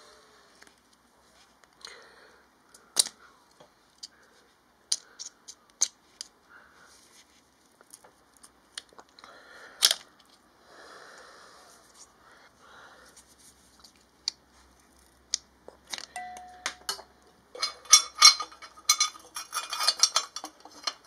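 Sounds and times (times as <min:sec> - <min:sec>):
metal pick scraping and clicking: 0:17.6 - 0:21.0.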